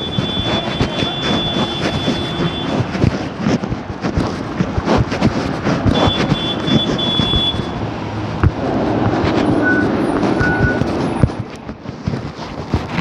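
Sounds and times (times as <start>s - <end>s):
short high beeps: 0.0s - 2.9s, 5.9s - 7.8s, 9.6s - 10.8s
cars passing: 0.0s - 13.0s.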